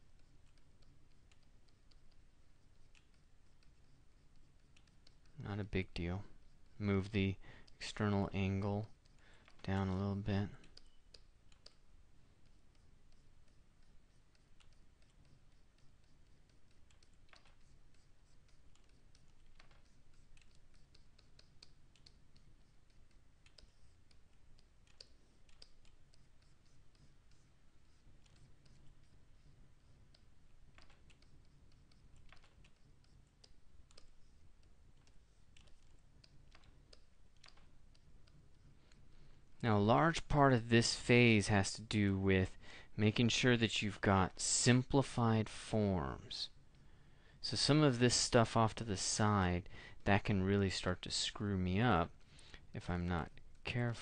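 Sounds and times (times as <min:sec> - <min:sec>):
computer keys clicking: 0:00.0 - 0:39.4
low steady hum: 0:00.0 - 0:54.0.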